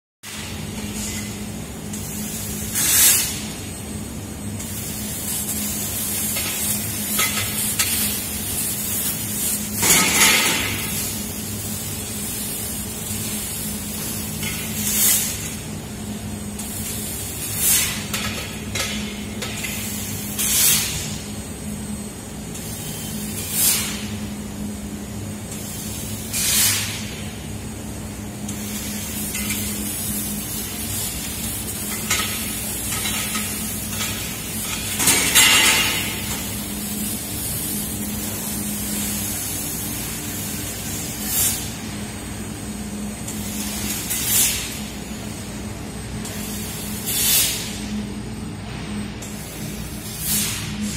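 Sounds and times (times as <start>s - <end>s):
short hissing bursts: 46.3s - 47.8s.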